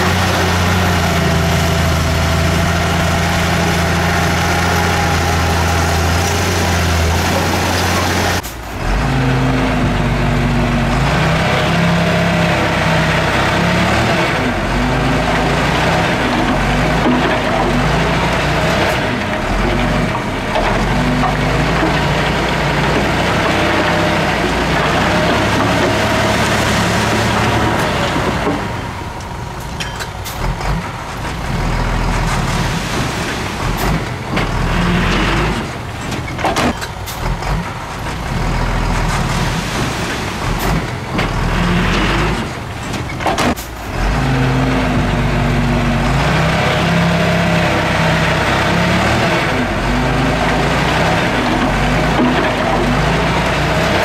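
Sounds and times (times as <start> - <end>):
diesel engine running loudly: 0.0 - 36.2, 36.9 - 54.0.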